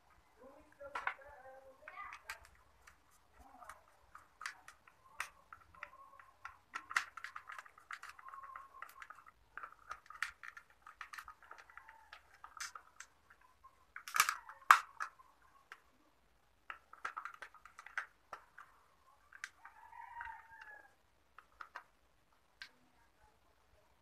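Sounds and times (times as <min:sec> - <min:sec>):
plastic parts clicking and knocking: 0:00.0 - 0:22.9
rooster crowing: 0:19.6 - 0:21.0.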